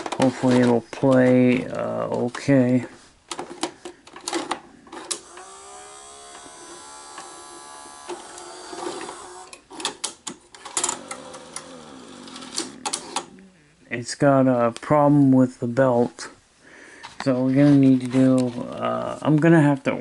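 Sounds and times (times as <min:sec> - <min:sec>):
mechanism clicks and clunks: 0:00.0 - 0:02.5, 0:03.3 - 0:13.4
loading motor whining: 0:04.9 - 0:13.7.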